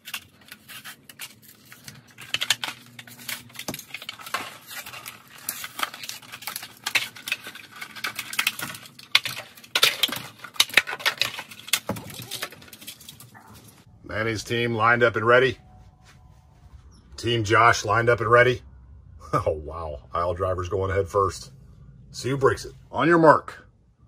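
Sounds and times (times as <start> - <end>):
toy cars clicking and clattering: 0.0 - 13.8
plastic and cardboard crinkling: 0.0 - 13.9.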